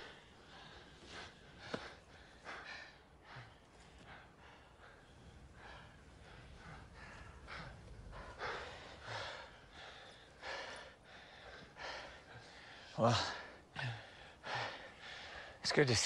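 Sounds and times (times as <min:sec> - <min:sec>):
faint low rumble: 0:00.0 - 0:12.9
men breathing hard: 0:00.0 - 0:16.0.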